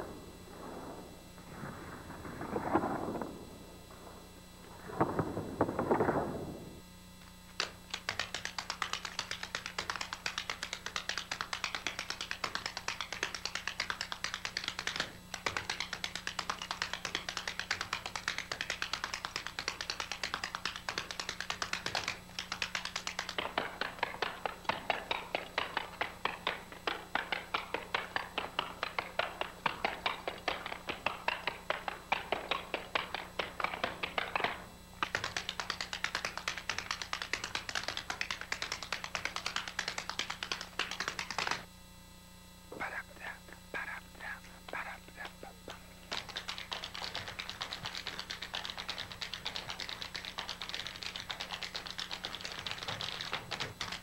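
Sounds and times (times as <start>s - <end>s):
short low rumble: 0.0s - 7.0s
tap shoes on wooden floor: 7.6s - 41.7s, 45.7s - 54.0s.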